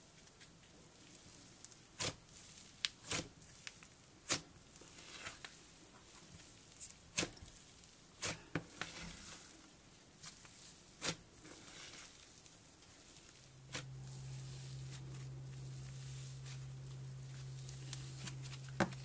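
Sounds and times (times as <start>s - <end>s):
slime crackling and popping: 1.0s - 5.6s, 10.2s - 19.0s.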